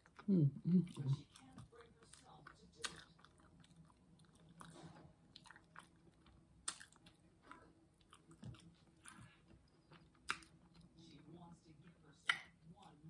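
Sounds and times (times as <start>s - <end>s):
close-miked chewing: 0.0s - 13.0s
wet mouth clicks and smacks: 6.6s - 7.2s, 10.2s - 10.6s.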